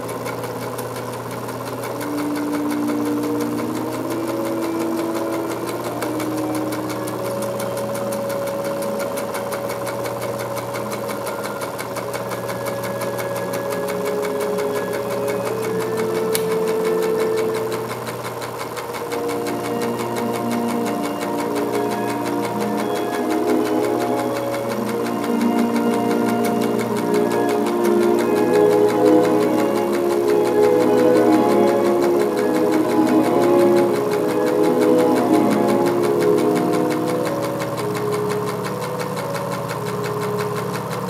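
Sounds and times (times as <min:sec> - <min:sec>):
droning tones: 0:00.0 - 0:41.0
film projector clattering: 0:00.0 - 0:41.0.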